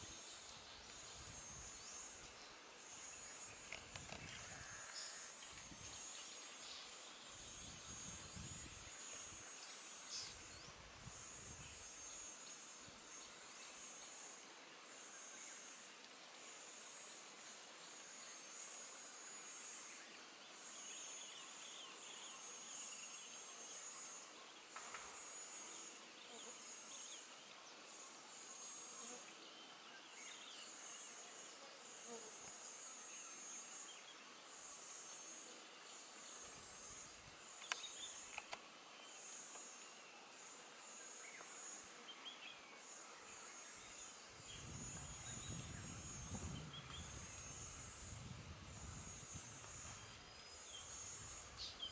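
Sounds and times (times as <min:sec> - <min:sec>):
faint insect chirps: 0:00.0 - 0:51.9
insects buzzing trill: 0:00.0 - 0:51.9.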